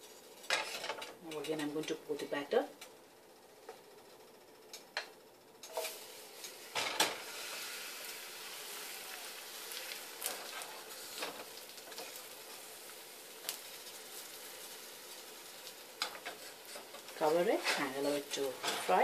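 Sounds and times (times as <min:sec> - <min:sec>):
batter sizzling in hot oil: 0:03.4 - 0:19.0
spoon scraping a pan: 0:16.0 - 0:19.0.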